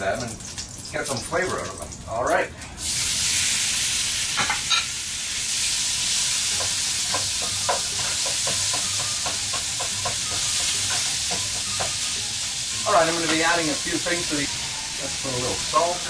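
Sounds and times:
meat sizzling in oil: 0.0s - 16.0s.

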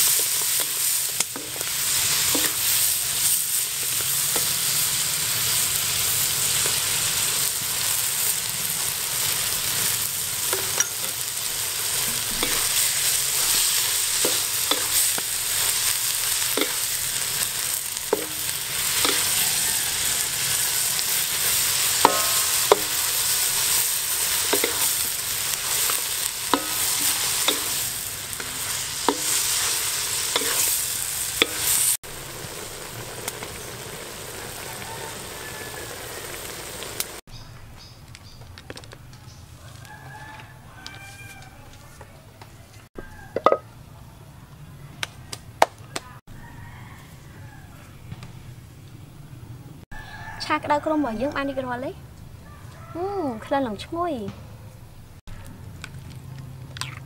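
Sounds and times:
mussels sizzling in a wok: 0.0s - 37.2s
spatula knocking against wok: 22.0s - 23.1s.

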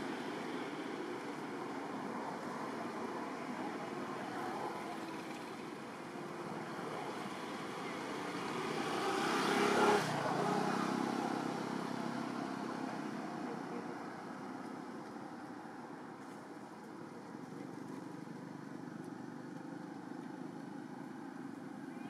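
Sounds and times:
motor vehicle passing: 0.0s - 15.8s.

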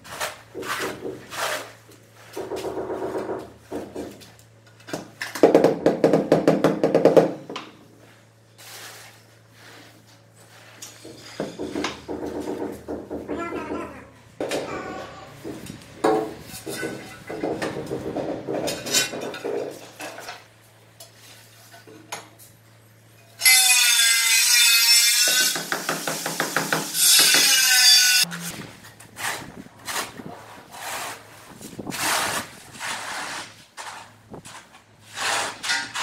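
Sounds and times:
trowel scraping tile adhesive: 29.2s - 36.0s.

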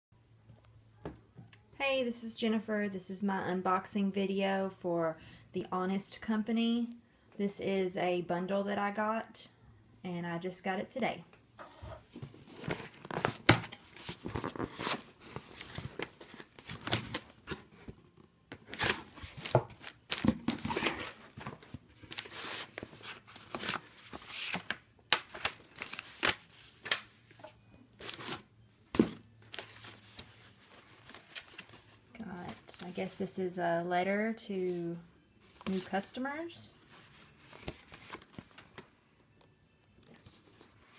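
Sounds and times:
packing tape ripping: 18.6s - 21.3s.

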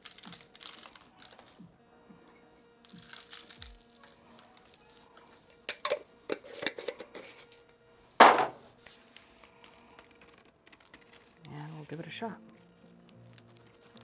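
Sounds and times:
loud knock on wooden counter: 8.2s - 8.6s.

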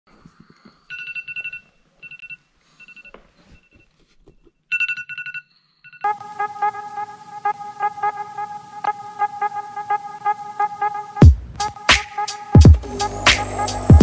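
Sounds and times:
busy tones with regular beat: 11.2s - 14.0s.

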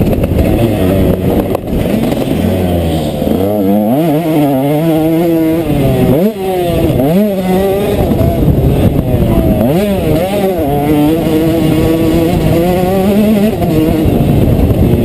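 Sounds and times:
two-stroke motocross engine revving: 0.0s - 15.0s.

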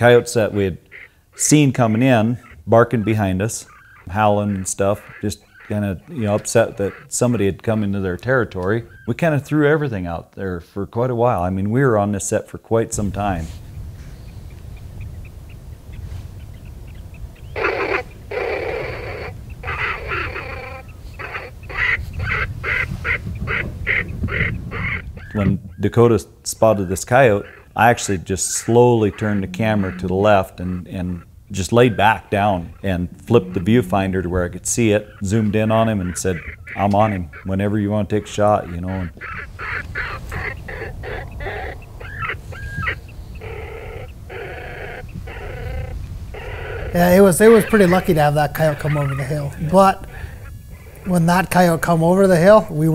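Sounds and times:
pitched animal calls: 0.0s - 9.2s, 15.9s - 26.0s, 26.6s - 52.9s
wind on microphone: 12.9s - 26.0s, 26.6s - 37.8s, 38.9s - 51.9s
dog-like animal yelping: 17.6s - 23.2s, 39.1s - 49.4s.

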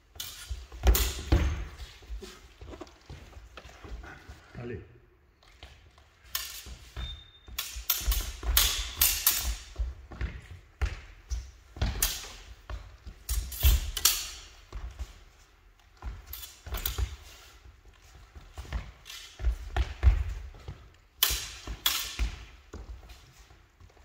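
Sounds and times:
steel blades clacking: 7.6s - 9.7s
feet stamping on wooden floor: 9.6s - 13.3s, 17.0s - 21.2s.

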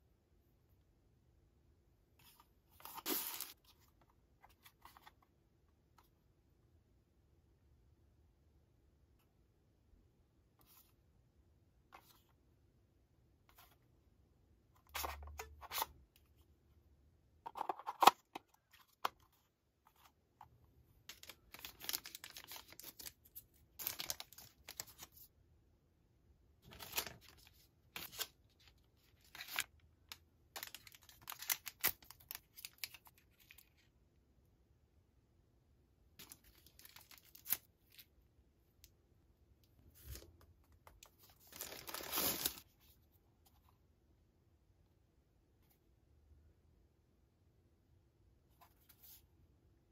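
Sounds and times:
plastic bags crinkling and tearing: 21.1s - 23.1s, 41.5s - 42.6s.

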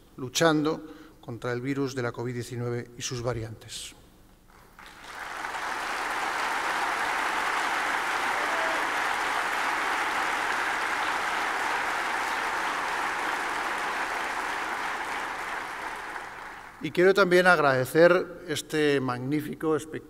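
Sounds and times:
audience applauding: 4.5s - 16.9s.

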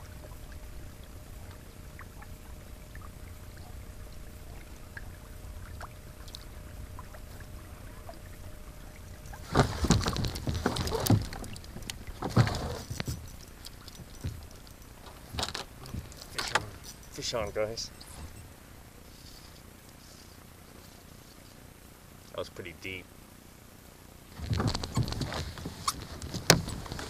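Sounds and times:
water rumbling against boat hull: 0.0s - 19.0s, 24.3s - 27.0s
faint steady hum: 0.0s - 27.0s
loud splashing and knocking: 9.4s - 12.8s.

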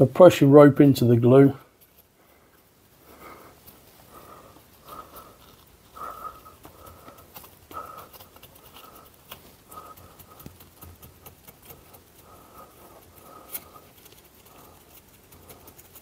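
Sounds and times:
fingers tapping and rubbing gasket: 6.0s - 16.0s.

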